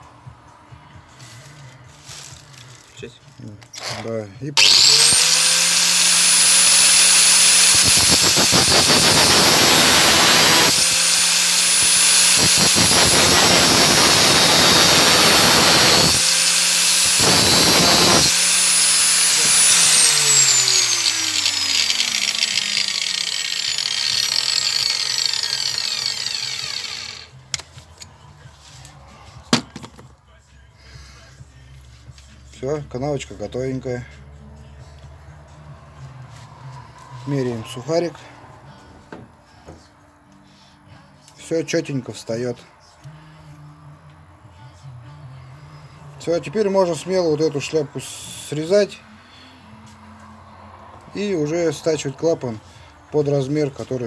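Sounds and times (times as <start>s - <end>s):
angle grinder grinding metal: 3.7s - 28.1s
grinder winding down whine: 3.8s - 27.4s.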